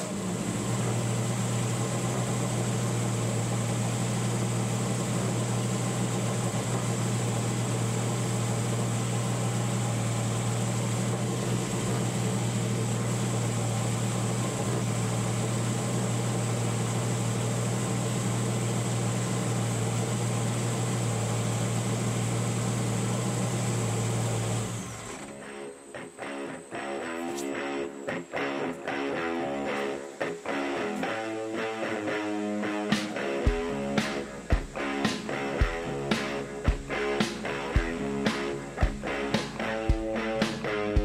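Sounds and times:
race car engine idling: 0:00.0 - 0:25.0.

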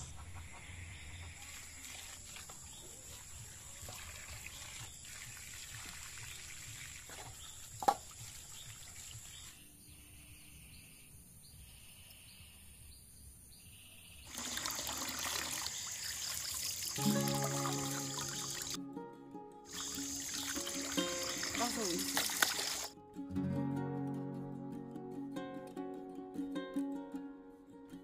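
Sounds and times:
water trickling into metal basin: 0:01.5 - 0:09.6, 0:14.3 - 0:18.8, 0:19.7 - 0:22.9.

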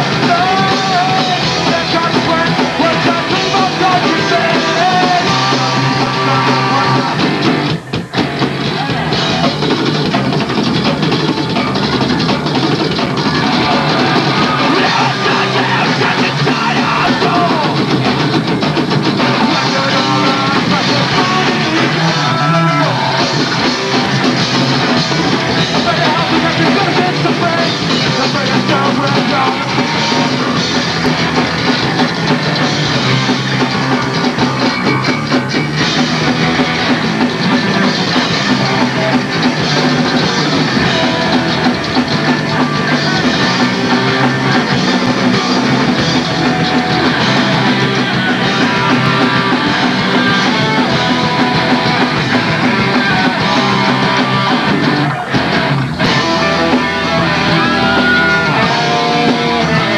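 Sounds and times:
person singing: 0:00.0 - 0:07.4, 0:13.2 - 0:17.9, 0:19.2 - 0:23.5, 0:25.6 - 0:30.6, 0:40.8 - 0:55.4, 0:56.0 - 0:59.9
drum kit: 0:00.0 - 0:59.9
electric guitars: 0:00.0 - 0:59.9.

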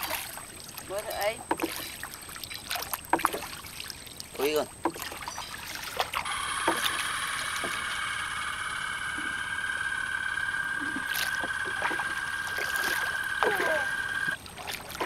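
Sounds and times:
insects buzzing: 0:06.2 - 0:14.4.

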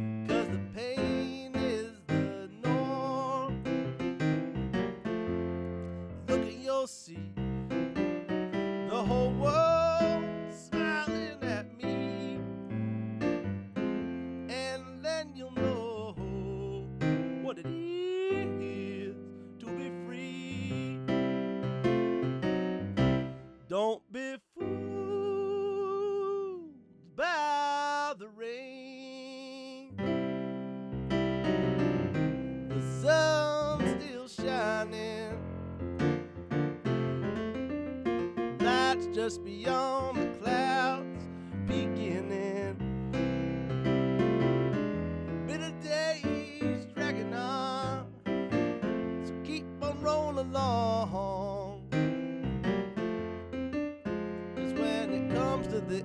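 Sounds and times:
man singing wordless held notes: 0:00.0 - 0:04.1, 0:05.9 - 0:08.1, 0:08.8 - 0:12.7, 0:13.8 - 0:21.3, 0:23.4 - 0:30.0, 0:32.6 - 0:35.6, 0:38.6 - 0:43.3, 0:45.5 - 0:52.0, 0:54.6 - 0:56.0
digital piano playing chords: 0:00.0 - 0:23.9, 0:24.6 - 0:27.6, 0:29.9 - 0:56.0.

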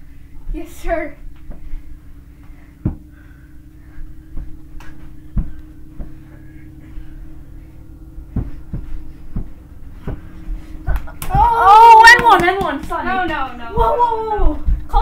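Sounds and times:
steady low hum: 0:00.0 - 0:15.0
dull thumps of feet and bodies: 0:02.8 - 0:03.1, 0:04.2 - 0:06.3, 0:08.3 - 0:15.0.

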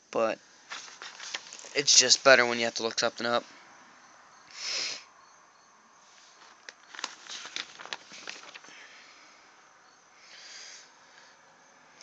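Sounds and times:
paper rustling and crinkling: 0:00.7 - 0:02.3, 0:06.2 - 0:08.9.

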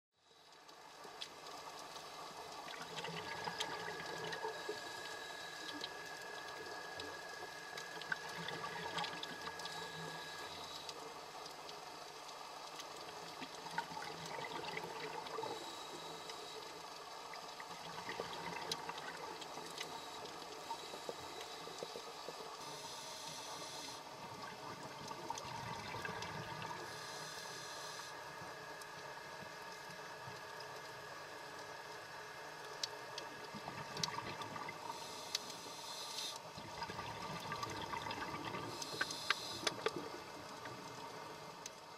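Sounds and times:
underwater water noise: 0:00.2 - 0:41.9
small clicks and crackles: 0:00.3 - 0:41.9.

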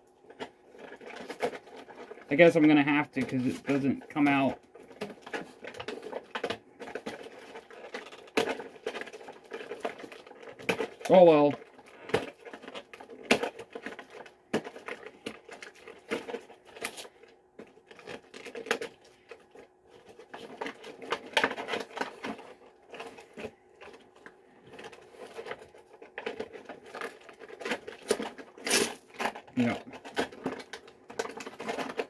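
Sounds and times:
faint steady hum: 0:00.0 - 0:32.0
small bottles and packaging handled: 0:00.0 - 0:32.0.

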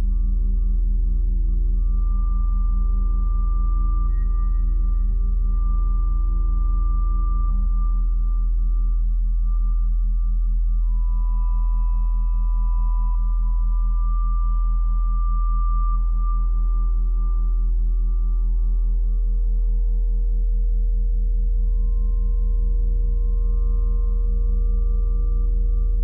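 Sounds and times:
deep steady drone: 0:00.0 - 0:26.0
long pure held tones: 0:00.0 - 0:26.0.

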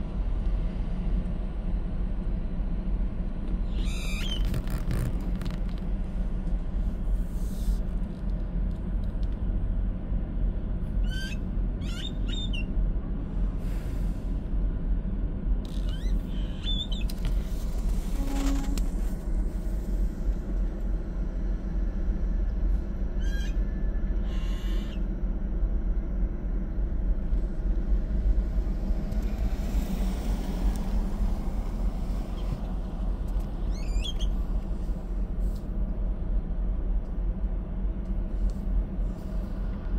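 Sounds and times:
car cabin rumble: 0:04.0 - 0:07.2
high squeaky chirps: 0:33.7 - 0:34.3.

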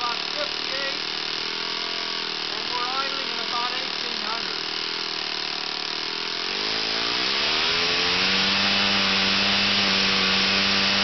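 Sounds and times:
model aircraft engine revving: 0:00.0 - 0:11.0.

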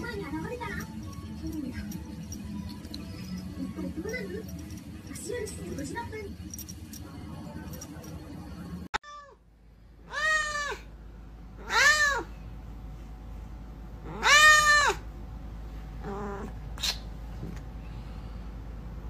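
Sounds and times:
cat meowing: 0:10.1 - 0:10.9, 0:11.6 - 0:12.3, 0:14.1 - 0:15.0.

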